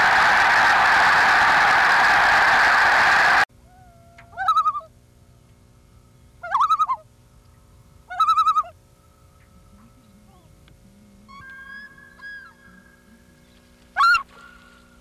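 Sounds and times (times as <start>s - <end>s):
loon calls: 6.4s - 7.1s, 8.1s - 8.8s, 11.3s - 13.4s, 14.0s - 14.6s.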